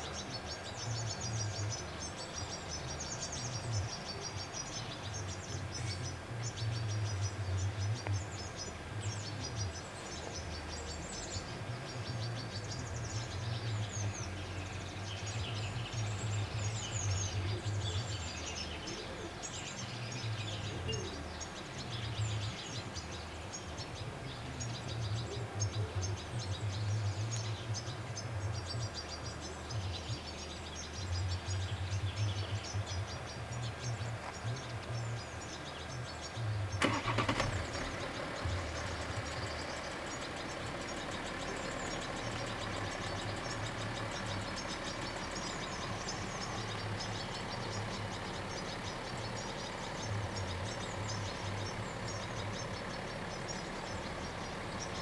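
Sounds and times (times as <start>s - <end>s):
car engine idling: 0.0s - 55.0s
small birds chirping: 0.0s - 55.0s.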